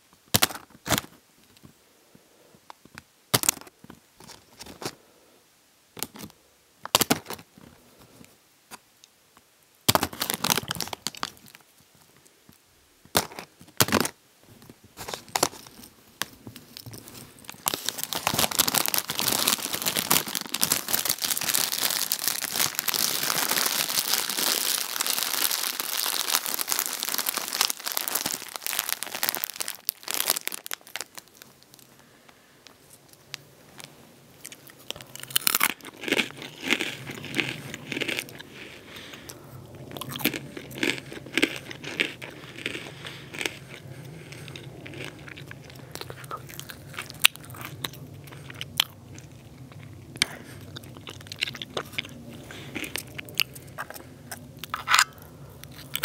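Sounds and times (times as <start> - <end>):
plastic bag crinkling: 9.9 - 11.6, 15.0 - 32.1.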